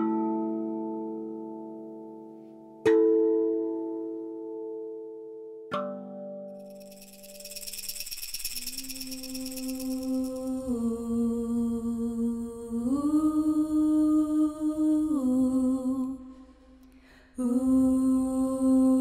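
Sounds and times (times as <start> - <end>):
person humming long notes: 9.1 - 16.2.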